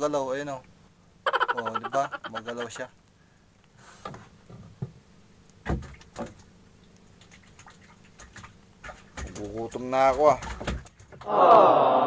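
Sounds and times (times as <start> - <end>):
faint ticks: 2.6 - 3.8.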